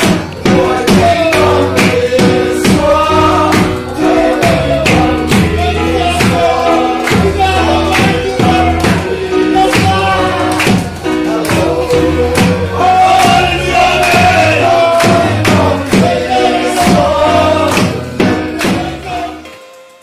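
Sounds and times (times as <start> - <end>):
steady beat: 0.0 - 19.3
group singing worship song: 0.0 - 19.6
keyboard chords: 0.0 - 20.0.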